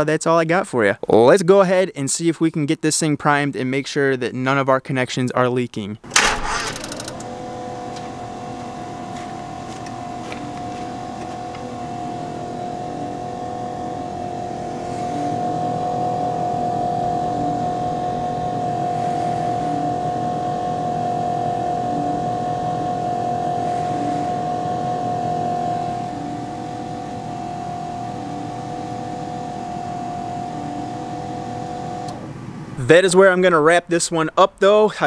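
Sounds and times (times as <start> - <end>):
high even whine: 6.0 - 33.9
diesel engine running: 6.1 - 19.8.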